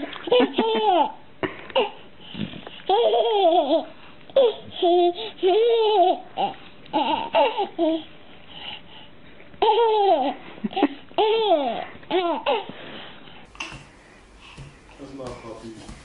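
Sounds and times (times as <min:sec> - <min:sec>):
baby laughing and babbling: 0:00.0 - 0:02.0, 0:02.9 - 0:08.1, 0:09.6 - 0:12.7, 0:13.5 - 0:16.0.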